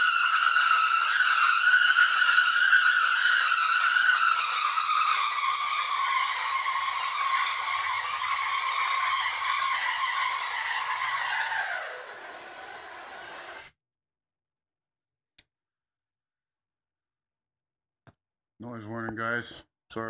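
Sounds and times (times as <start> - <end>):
tesla coil buzzing arcs: 0.0 - 13.7.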